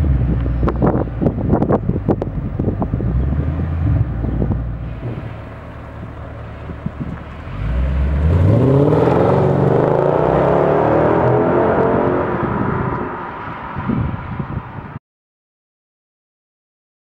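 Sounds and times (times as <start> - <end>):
car engine revving and accelerating: 6.1 - 14.0.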